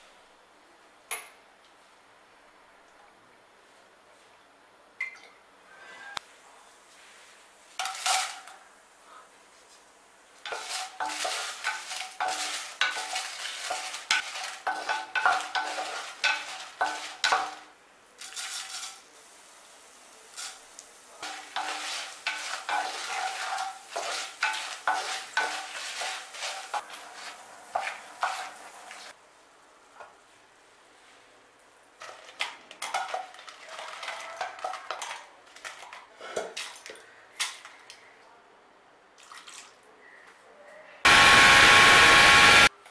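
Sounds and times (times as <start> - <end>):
light oil sizzle: 7.0 - 35.6
wooden spatula scraping clay pot: 10.5 - 17.5, 21.2 - 29.1.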